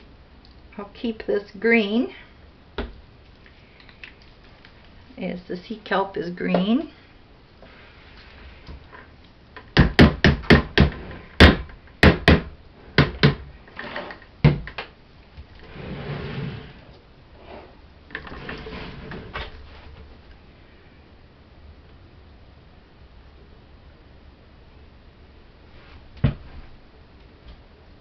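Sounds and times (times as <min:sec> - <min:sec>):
bucket scraping on table: 0:13.7 - 0:14.2, 0:15.6 - 0:16.8, 0:17.4 - 0:19.6.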